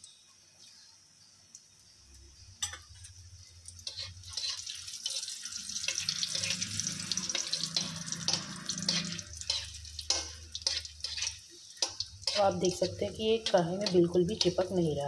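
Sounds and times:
dough balls sizzling in oil: 0.0 - 15.0
metal spoon scraping pan: 3.8 - 14.9.

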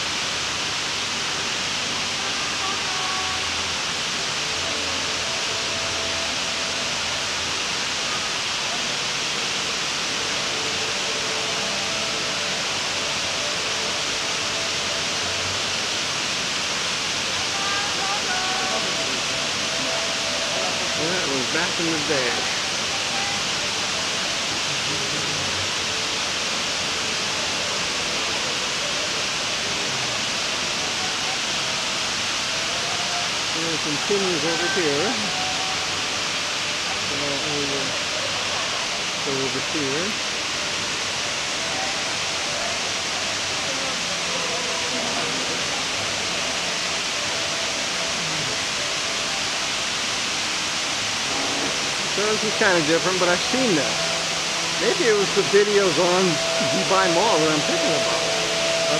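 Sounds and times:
indoor waterfall rushing: 0.0 - 58.9
faint voices: 17.0 - 58.9.

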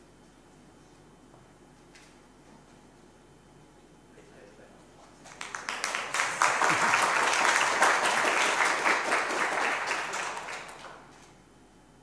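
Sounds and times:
audience applauding: 5.3 - 11.2.

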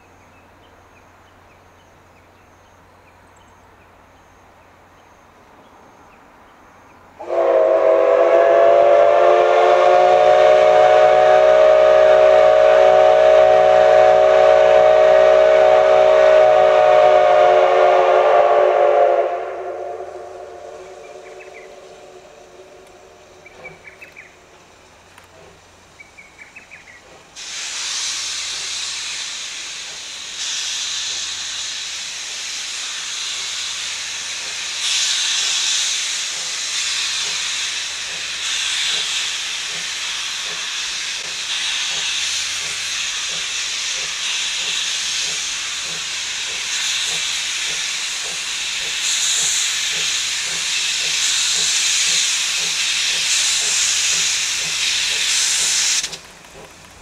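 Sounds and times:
faint bird or insect chirps: 0.0 - 7.2, 20.8 - 25.0, 25.9 - 27.1
steam locomotive hissing steam: 7.1 - 57.0.

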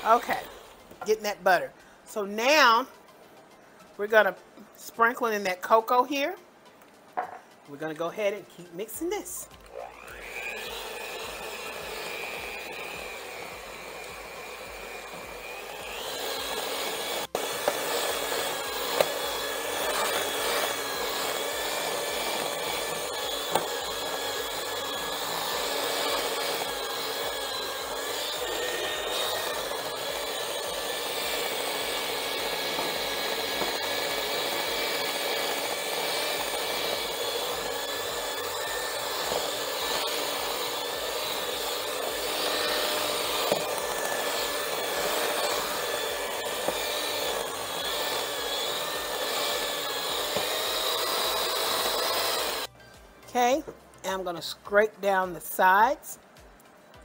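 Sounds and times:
electric hand mixer whipping: 0.0 - 1.3, 9.3 - 52.7.

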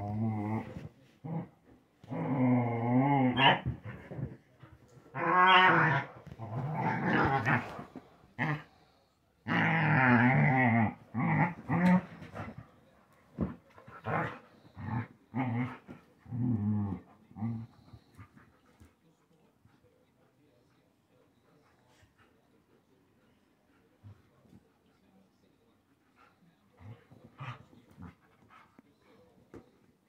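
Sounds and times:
dogs growling in play: 0.0 - 18.9, 26.1 - 28.8.

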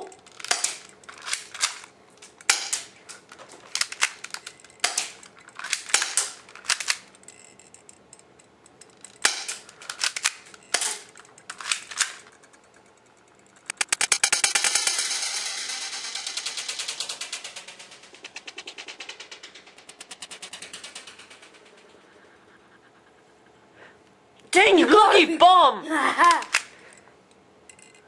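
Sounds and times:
toy guns snapping: 0.0 - 7.4, 8.8 - 12.7, 13.6 - 21.8, 26.2 - 26.9
rattling clicks: 0.0 - 22.2, 27.7 - 28.0.

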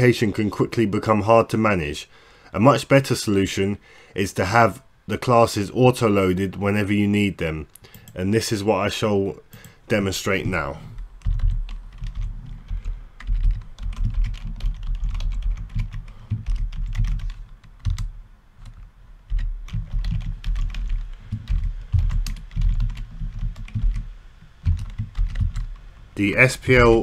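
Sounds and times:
typing on computer keyboard: 11.2 - 25.8.

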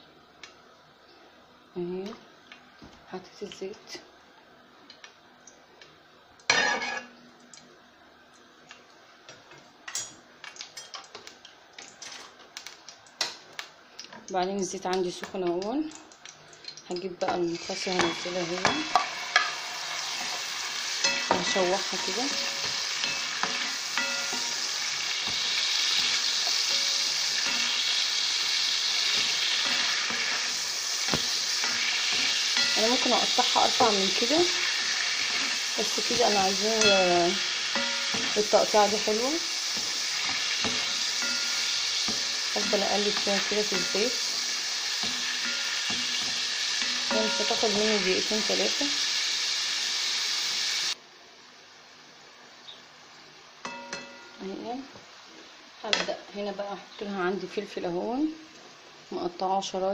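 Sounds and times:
spatula scraping pan: 6.5 - 7.1, 17.5 - 48.1
meat sizzling in hot oil: 14.6 - 51.0.

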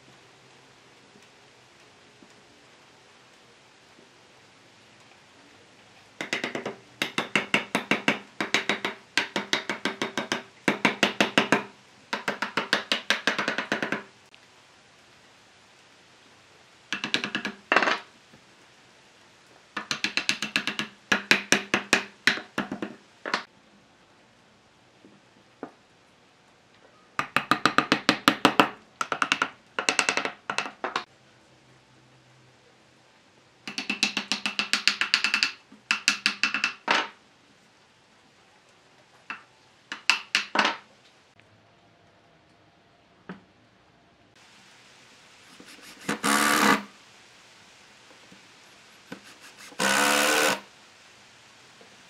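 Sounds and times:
wooden block knocking wood: 6.2 - 14.1, 16.9 - 18.0, 19.8 - 23.5, 27.2 - 31.0, 33.7 - 37.2, 39.3 - 40.8.

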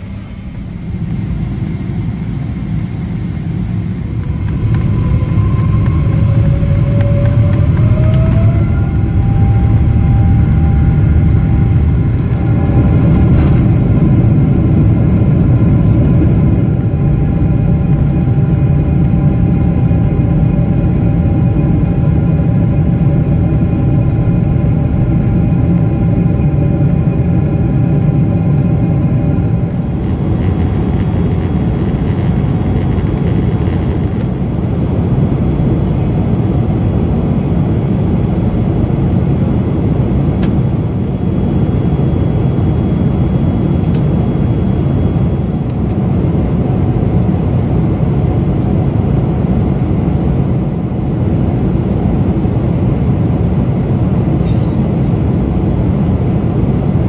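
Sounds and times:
jet engines and airflow: 0.0 - 57.0
steady engine tones: 0.0 - 57.0.

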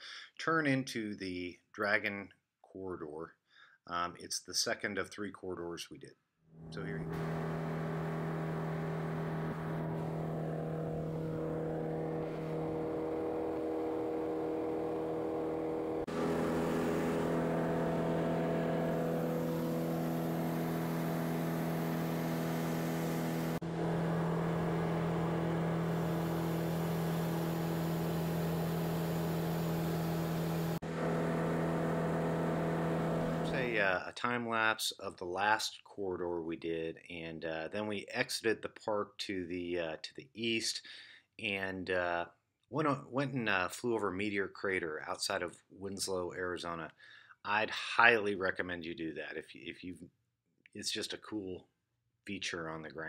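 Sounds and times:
airplane engine and propeller drone: 6.8 - 33.6.

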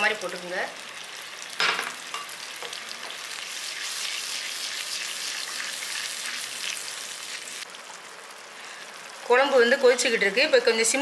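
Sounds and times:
sauce bubbling and sputtering: 2.8 - 9.2.

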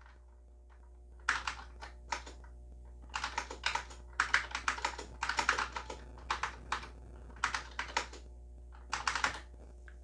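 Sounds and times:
steady low hum: 0.0 - 10.0
keyboard keystrokes clicking: 1.2 - 2.5, 3.1 - 9.5.

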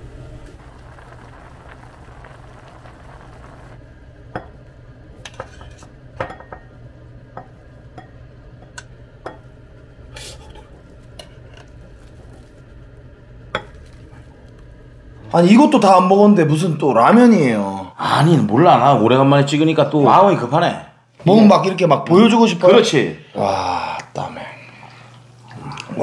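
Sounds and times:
pot bubbling: 0.0 - 16.8
low hum: 0.0 - 17.1.

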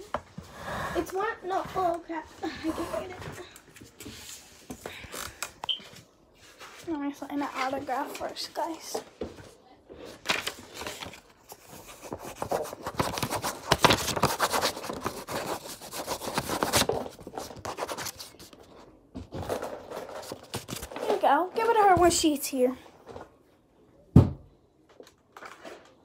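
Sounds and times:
paper and hand rubbing: 11.6 - 18.6.

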